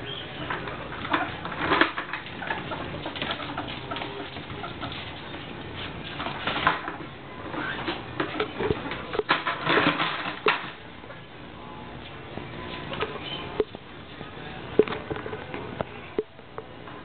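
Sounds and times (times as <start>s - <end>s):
ferrets scratching on hard floor: 0.0s - 10.7s.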